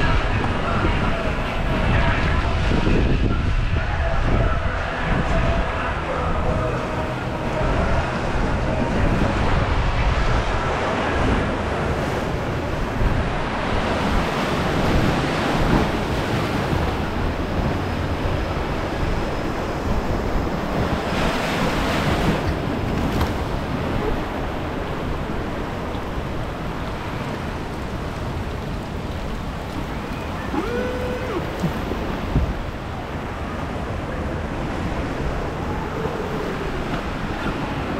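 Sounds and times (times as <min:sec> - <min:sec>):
whitewater rushing: 0:00.0 - 0:37.9
wind on microphone: 0:00.0 - 0:37.9
water splashing: 0:04.6 - 0:33.6.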